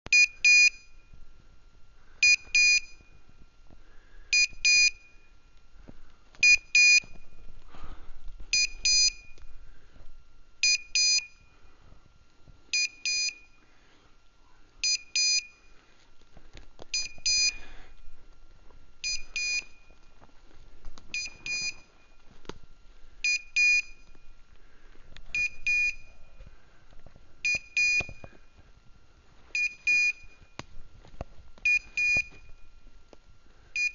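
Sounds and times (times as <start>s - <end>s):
beeper collar double beeps: 10.6s - 11.4s, 17.0s - 17.6s.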